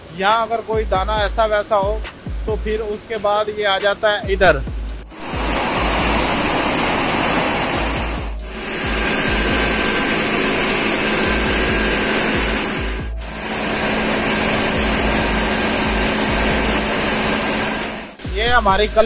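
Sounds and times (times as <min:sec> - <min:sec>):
grains streaming down chutes: 0:05.1 - 0:18.2
mill machinery running: 0:05.1 - 0:18.2.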